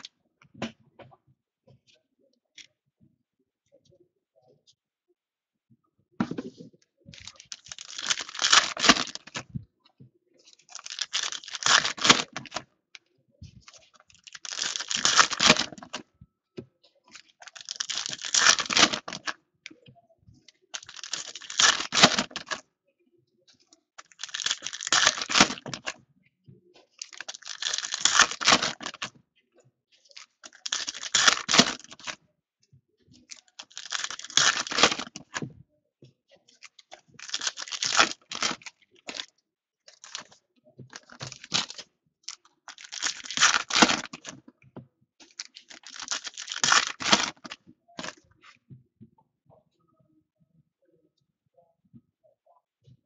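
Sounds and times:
card packs tearing and crinkling: 7.3s - 9.4s, 10.7s - 12.6s, 14.2s - 16.0s, 17.4s - 19.3s, 20.8s - 22.6s, 24.0s - 25.9s, 27.0s - 29.1s, 30.2s - 32.2s, 33.3s - 35.4s, 37.2s - 39.2s, 41.0s - 41.8s, 42.7s - 44.4s, 45.3s - 48.1s.

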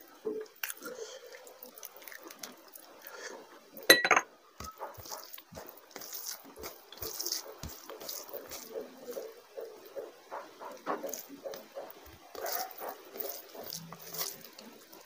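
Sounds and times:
wet squelching of hand mixing: 0.0s - 3.8s, 4.6s - 15.0s
glass bowl clinking on saucer: 3.9s - 4.8s
gravy pouring onto rice: 4.9s - 9.2s, 11.9s - 15.0s.

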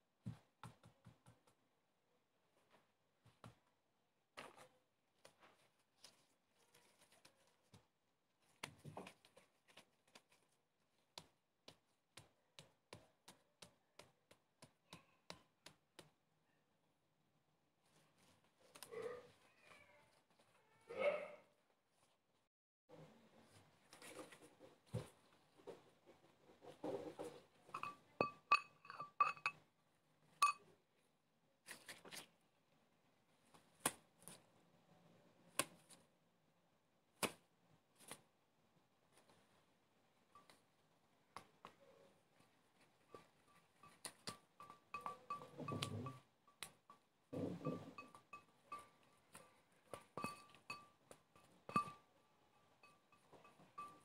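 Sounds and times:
fingertips tapping dough: 0.2s - 1.7s, 6.8s - 16.4s, 41.3s - 54.0s
hands pressing dough on marble: 0.2s - 1.7s, 7.0s - 16.4s.

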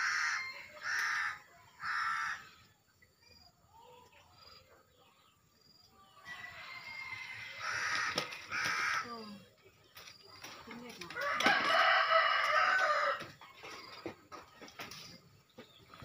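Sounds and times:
crow cawing: 0.0s - 2.6s, 7.6s - 9.2s.

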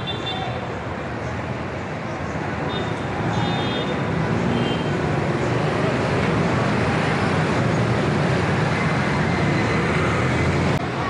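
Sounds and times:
street traffic rumble: 0.0s - 11.0s
crowd voices: 5.3s - 11.0s.

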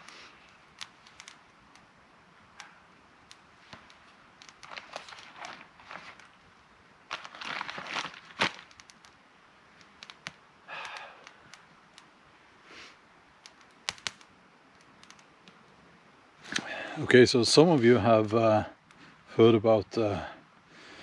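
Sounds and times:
log fire crackling: 0.0s - 21.0s
clothing rustling: 4.6s - 6.4s, 7.1s - 8.8s
sharp clicks: 8.6s - 12.1s, 13.4s - 15.6s.

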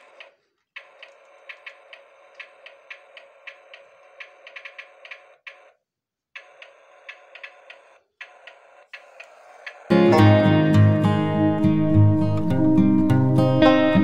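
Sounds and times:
sharp clicks: 0.0s - 5.7s, 6.4s - 9.9s
toy motor and gearbox whirring: 0.0s - 9.9s.

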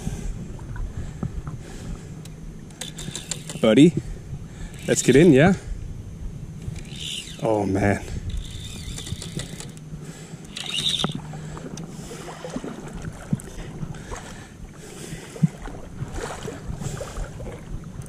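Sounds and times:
small clicks and knocks: 2.2s - 3.7s, 8.3s - 9.8s, 10.5s - 11.2s
sea water sloshing and splashing: 10.6s - 18.0s.

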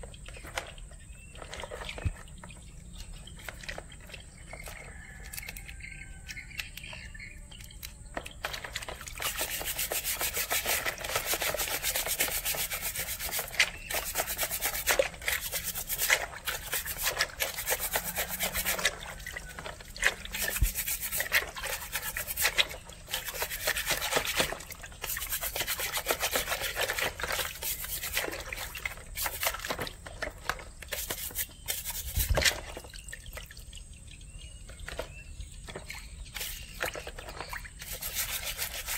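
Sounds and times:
brush scrubbing crab shell: 8.2s - 32.9s, 36.2s - 38.9s.

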